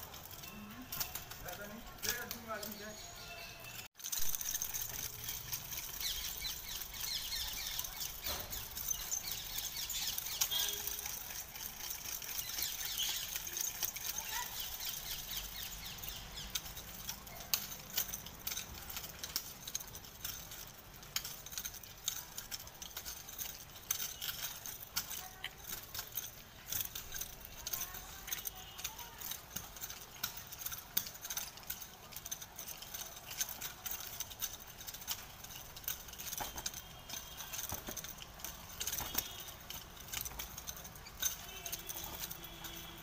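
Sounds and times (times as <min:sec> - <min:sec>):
birds chirping: 0:00.3 - 0:18.7.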